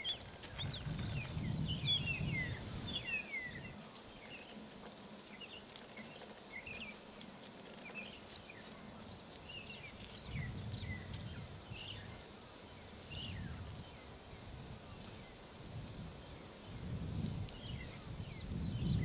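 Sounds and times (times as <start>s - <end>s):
birds chirping and whistling: 0.0s - 4.5s.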